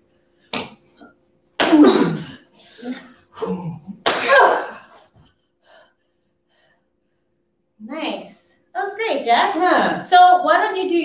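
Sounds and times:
people grunting and crying out: 1.7s - 5.0s.

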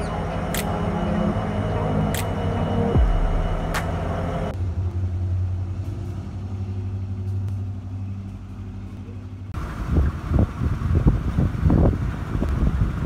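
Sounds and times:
diesel train engine drone: 0.0s - 13.0s
train rumble: 0.0s - 13.0s
wind buffeting: 9.6s - 13.0s.

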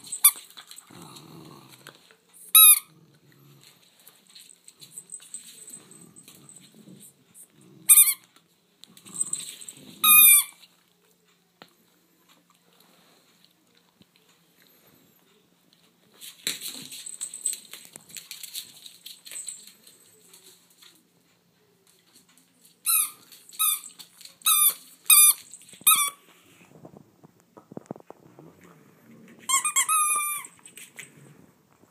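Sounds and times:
squeaky dog toy squeaking: 2.5s - 2.9s, 7.9s - 8.3s, 10.0s - 10.6s, 22.8s - 26.2s, 29.5s - 30.6s.

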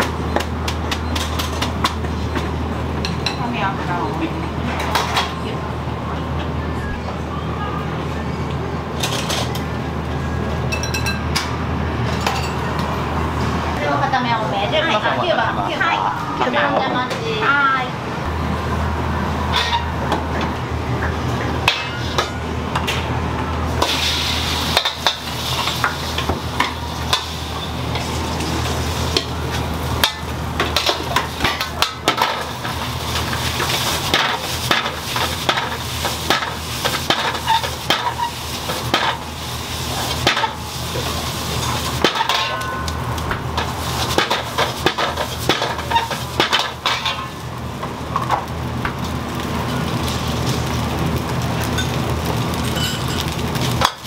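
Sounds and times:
food sizzling: 23.6s - 54.0s
ladle scraping a wok: 30.8s - 42.7s, 43.6s - 47.4s.

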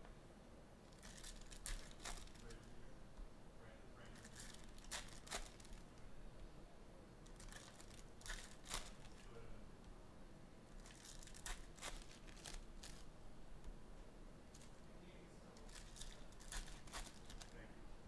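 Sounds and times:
foil wrapper crinkling and tearing: 0.9s - 2.5s, 4.2s - 5.9s, 7.3s - 9.3s, 10.8s - 13.1s, 15.6s - 17.6s.

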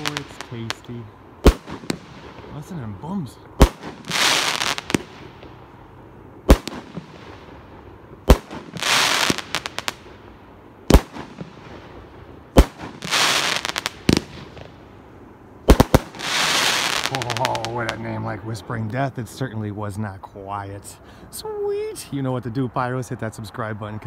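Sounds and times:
firework crackle: 0.0s - 5.6s, 6.4s - 10.2s, 10.8s - 14.9s, 15.6s - 18.1s
firework bangs: 0.0s - 5.7s, 6.4s - 14.9s, 15.6s - 18.1s.

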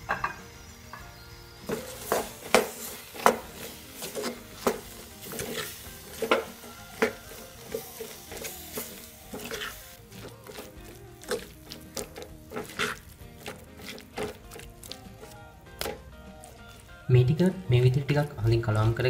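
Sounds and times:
spatula scraping clay pot: 1.7s - 16.9s.

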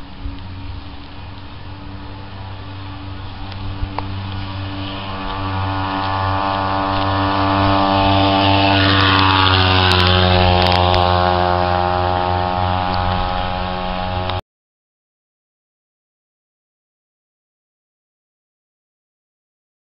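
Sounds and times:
small gas engine passing by: 0.0s - 14.4s.

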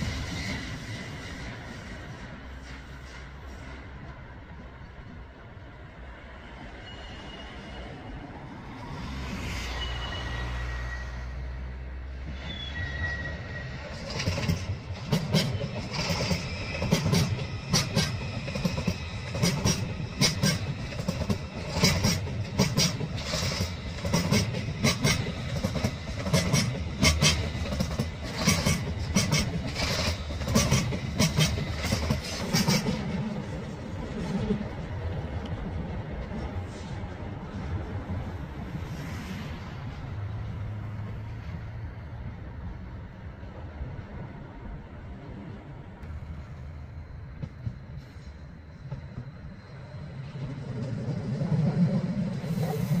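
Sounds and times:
train rumble: 0.0s - 53.0s
train wheels clattering on rails: 12.1s - 43.1s, 46.0s - 53.0s.

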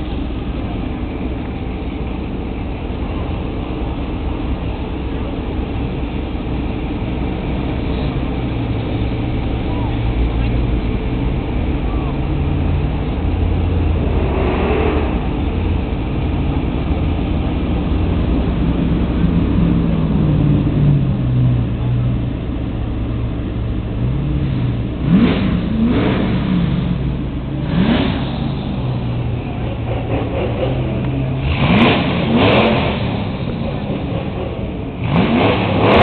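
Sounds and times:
car engines in slow traffic: 0.0s - 36.0s
short engine revs: 13.9s - 15.5s, 24.5s - 36.0s.

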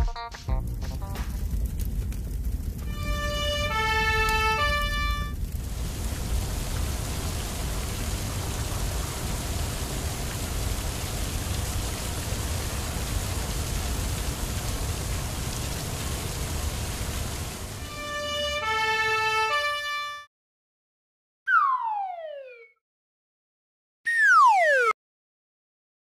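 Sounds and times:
fire hose spraying water: 1.0s - 19.2s
stepped electronic siren: 21.5s - 22.8s, 24.1s - 25.0s.

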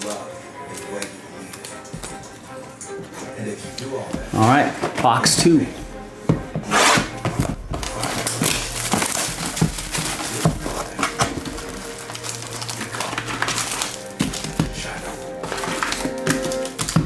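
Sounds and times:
background music: 0.0s - 17.0s
foil packs rustling: 7.3s - 17.0s
shrink-wrap tearing: 7.8s - 17.0s.

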